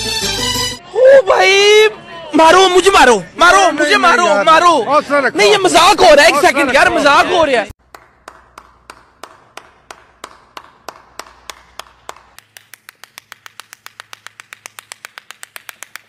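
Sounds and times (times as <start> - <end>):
hand clapping: 7.8 - 16.0.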